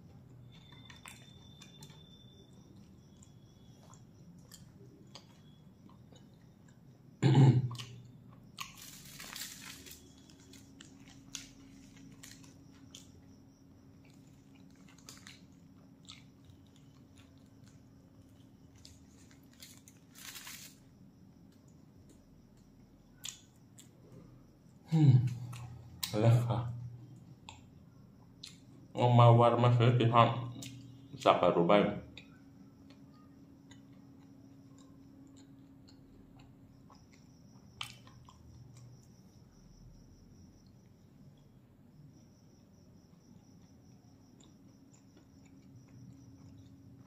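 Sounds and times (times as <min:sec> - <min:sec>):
person chewing food: 0:00.0 - 0:07.0, 0:07.6 - 0:20.7, 0:21.6 - 0:24.2, 0:25.3 - 0:26.1, 0:32.2 - 0:39.4, 0:42.5 - 0:47.0.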